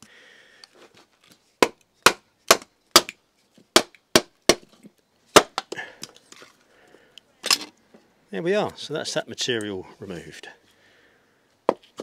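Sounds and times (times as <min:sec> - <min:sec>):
maul striking machete: 0:01.6 - 0:03.2, 0:03.8 - 0:04.7, 0:05.4 - 0:05.7.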